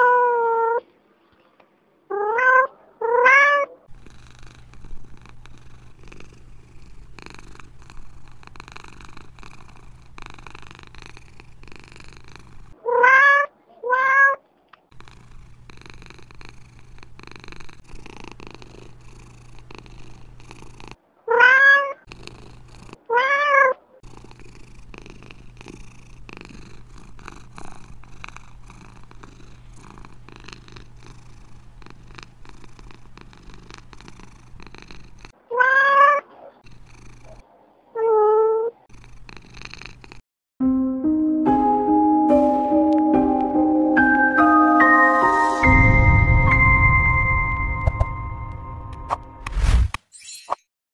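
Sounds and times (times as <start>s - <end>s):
cat meowing: 0.0s - 0.8s, 2.1s - 3.9s, 12.8s - 14.4s, 21.2s - 22.1s, 23.1s - 23.8s, 35.5s - 36.5s, 37.9s - 38.8s
cat purring: 2.2s - 12.8s, 14.8s - 21.1s, 22.0s - 23.1s, 24.0s - 35.4s, 36.3s - 37.7s, 38.4s - 40.2s.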